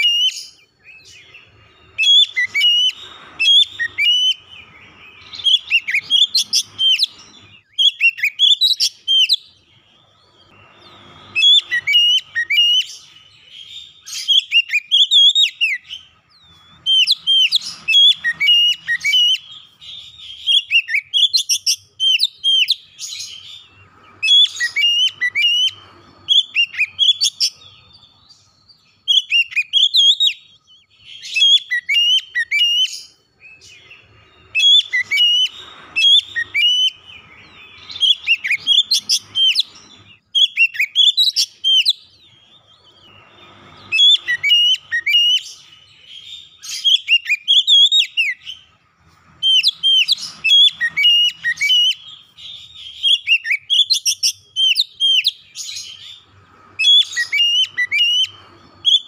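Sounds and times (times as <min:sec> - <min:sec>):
bird singing whistled phrases: 0:00.0 - 0:48.8, 0:49.4 - 0:59.0.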